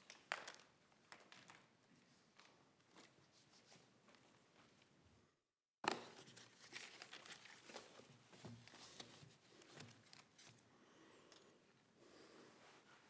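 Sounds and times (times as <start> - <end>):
papers rustling: 5.8 - 10.6.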